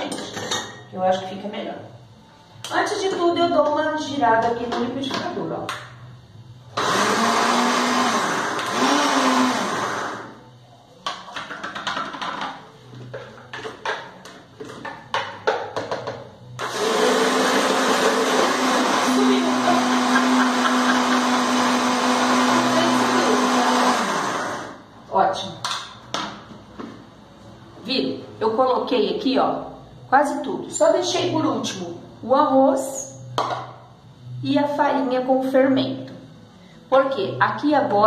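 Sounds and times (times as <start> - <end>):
electric blender running: 6.7 - 10.5, 16.6 - 24.9.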